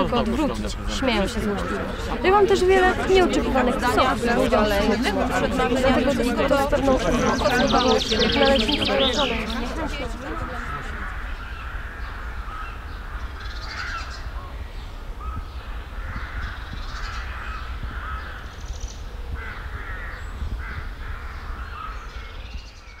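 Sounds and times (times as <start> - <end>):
crows cawing: 10.1 - 14.2, 16.0 - 18.6.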